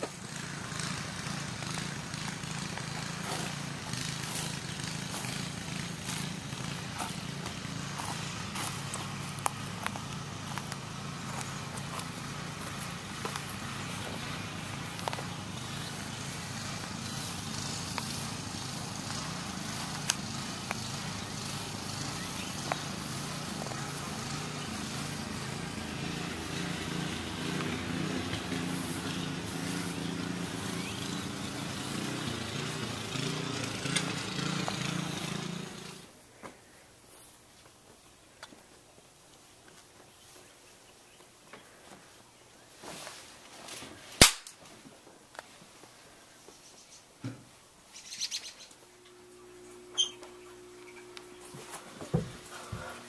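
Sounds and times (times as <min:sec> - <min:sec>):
small engine running: 0:00.0 - 0:36.2, 0:48.0 - 0:53.0.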